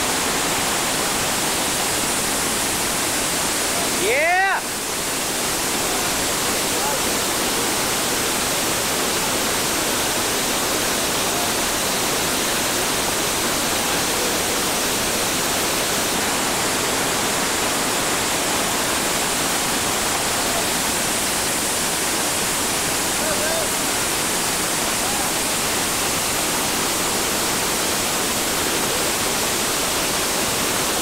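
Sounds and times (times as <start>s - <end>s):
whitewater rushing: 0.0s - 31.0s.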